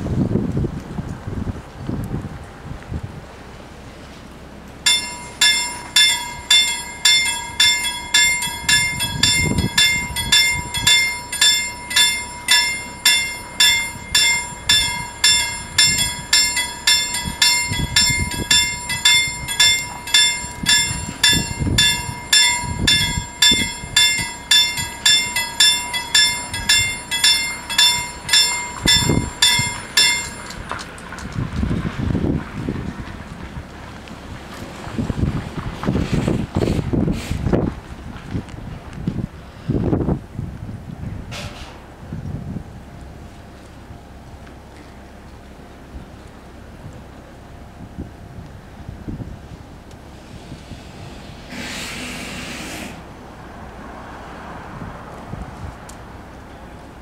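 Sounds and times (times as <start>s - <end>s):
level crossing bells ringing: 4.9s - 30.9s.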